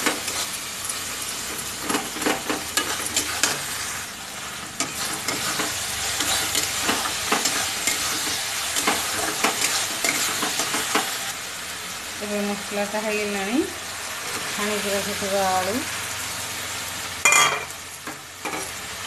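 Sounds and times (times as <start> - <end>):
food sizzling in oil: 0.0 - 19.0
metal spatula scraping pan: 1.7 - 11.2.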